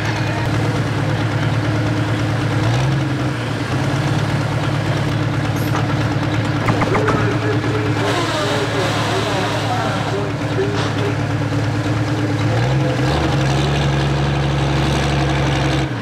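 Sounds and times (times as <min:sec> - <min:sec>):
tractor diesel engine idling: 0:00.0 - 0:16.0
throttle blip: 0:06.6 - 0:08.0
person speaking: 0:06.7 - 0:11.2.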